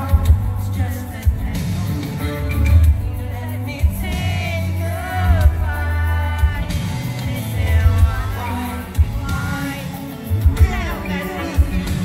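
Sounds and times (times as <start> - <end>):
live band with keyboards: 0.0 - 12.0
man singing pop song: 0.0 - 12.0.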